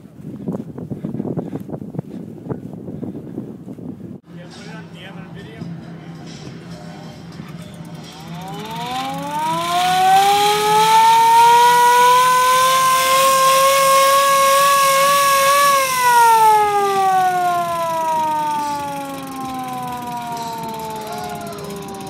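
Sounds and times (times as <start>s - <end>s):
siren wailing: 8.3s - 22.0s.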